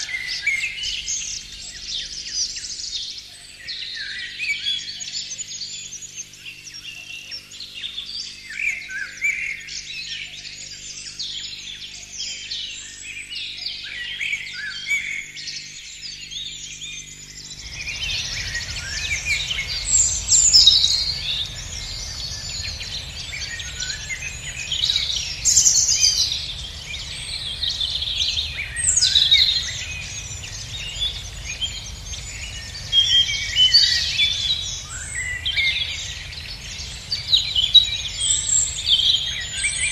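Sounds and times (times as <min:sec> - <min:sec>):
songbirds chirping: 0:00.0 - 0:39.9
low rumble: 0:17.3 - 0:39.9.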